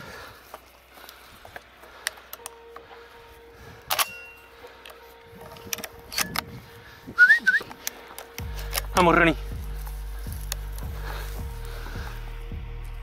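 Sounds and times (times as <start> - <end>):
faint steady tone: 0.0 - 8.8
footsteps on stony ground: 0.0 - 13.0.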